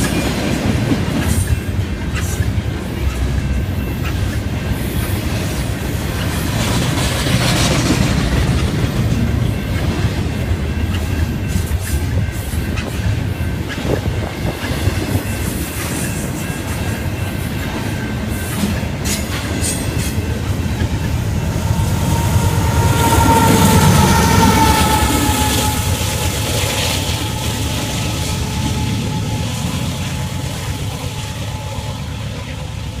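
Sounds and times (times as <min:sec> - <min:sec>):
train wheels rumbling on rail: 0:00.0 - 0:33.0
high squeal: 0:20.1 - 0:32.8.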